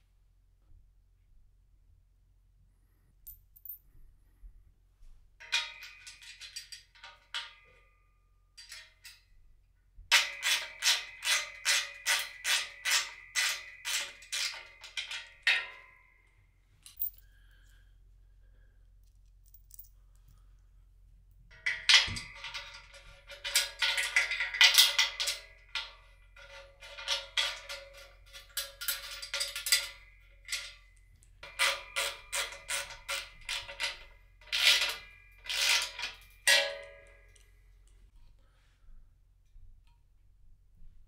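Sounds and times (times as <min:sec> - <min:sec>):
metal bolts clicking and rattling: 0:05.4 - 0:07.9, 0:08.6 - 0:09.3, 0:10.1 - 0:16.2, 0:21.5 - 0:38.0.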